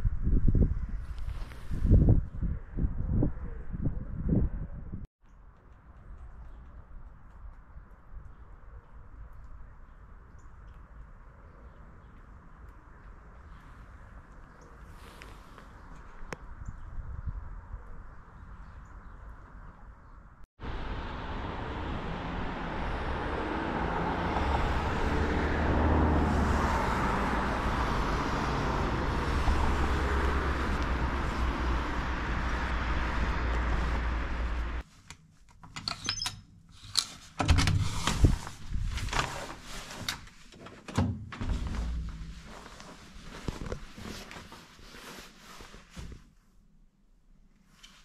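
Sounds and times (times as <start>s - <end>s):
moving vehicle rumble and hiss: 20.6s - 34.9s.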